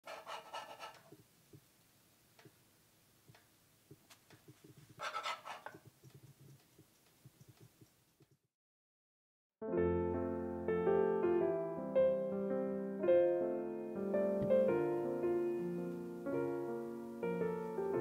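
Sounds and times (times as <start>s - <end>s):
faint ticks: 3.3s - 4.8s, 5.7s - 8.4s
metal spatula scraping hot plate: 5.0s - 5.8s.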